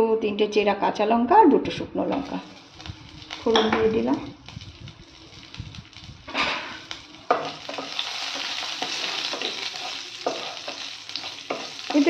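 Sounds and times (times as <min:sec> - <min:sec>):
spices sizzling in hot oil: 0:02.1 - 0:12.0
spatula scraping pan: 0:06.3 - 0:12.0.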